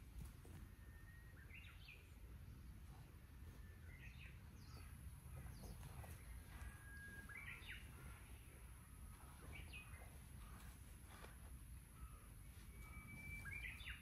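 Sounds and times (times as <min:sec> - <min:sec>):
low steady rumble: 0:00.0 - 0:14.0
small birds chirping: 0:00.0 - 0:14.0
thin bird whistle: 0:06.2 - 0:07.9, 0:12.0 - 0:14.0.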